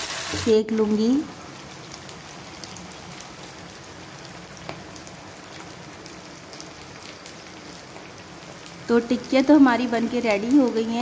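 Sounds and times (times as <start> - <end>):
food sizzling in hot oil: 0.0 - 11.0
oil crackling and popping: 0.0 - 11.0.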